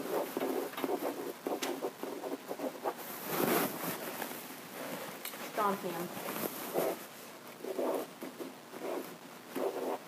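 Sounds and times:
marker squeaking on whiteboard: 0.0s - 3.0s, 7.6s - 10.0s.

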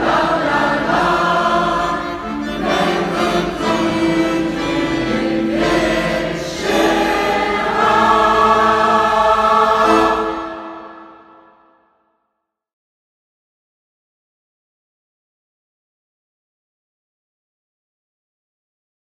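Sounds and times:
choir singing in parts: 0.0s - 11.9s.

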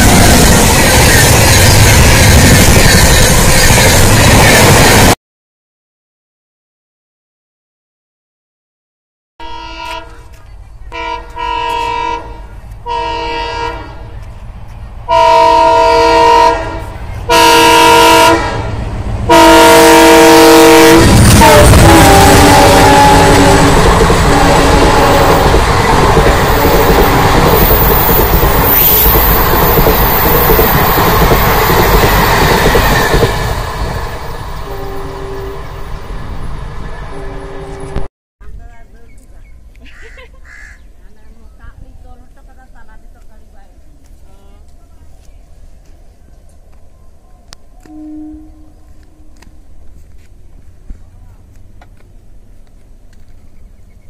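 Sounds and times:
low rumble of train: 0.0s - 5.2s, 9.4s - 54.0s
locomotive air horn blasts: 9.4s - 10.3s, 10.9s - 14.2s, 15.1s - 25.5s, 34.6s - 35.8s, 47.8s - 49.3s
two-note tone: 34.6s - 35.8s, 47.8s - 49.3s.

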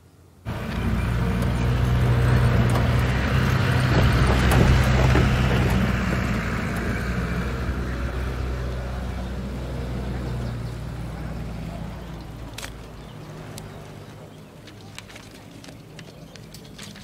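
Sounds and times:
road noise: 0.0s - 17.0s
jeep engine humming: 0.4s - 16.7s
rattles: 0.7s - 7.8s.

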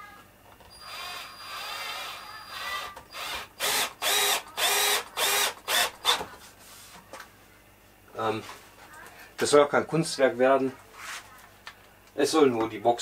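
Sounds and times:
cordless drill driving screws into wood: 0.8s - 6.2s.

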